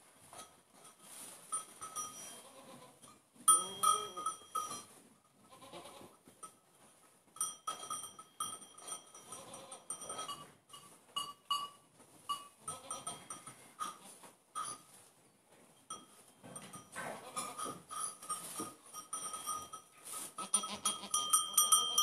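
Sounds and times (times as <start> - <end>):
small bell clinking: 0.3 - 5.0, 7.4 - 14.0, 14.6 - 15.0, 15.9 - 22.0
goats bleating: 5.5 - 6.1.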